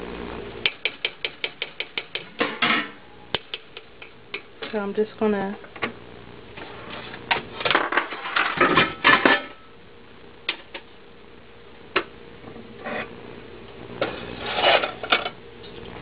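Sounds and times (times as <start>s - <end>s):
cookware clinking and scraping: 14.0s - 15.4s.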